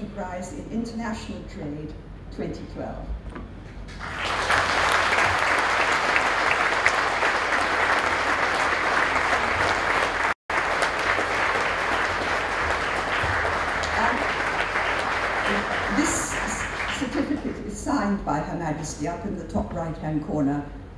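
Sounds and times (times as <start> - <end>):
audience applauding: 3.9 - 17.6.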